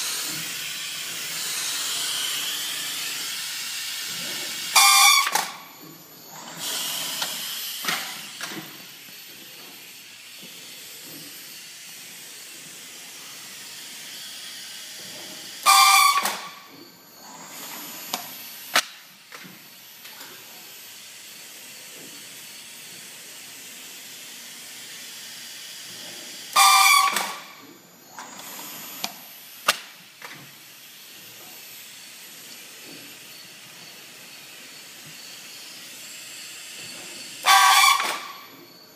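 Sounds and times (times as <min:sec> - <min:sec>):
air exhaust hissing: 0:00.0 - 0:14.0.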